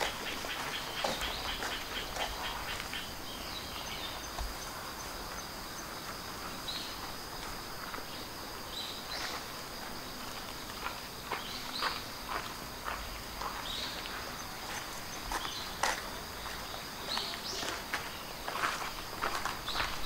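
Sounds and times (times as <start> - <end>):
bird chirps: 0.0 - 5.9
footsteps on gravelly sand: 0.0 - 20.0
insects chirring: 0.0 - 20.0.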